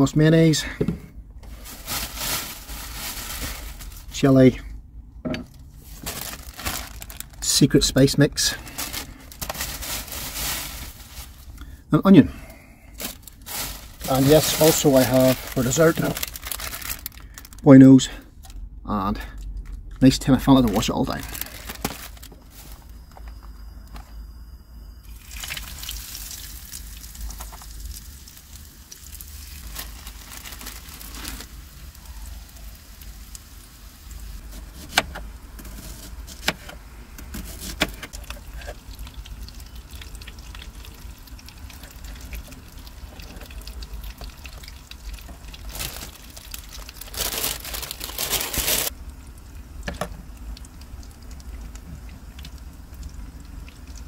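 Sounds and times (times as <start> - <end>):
scraping and rustling: 47.0 - 48.9.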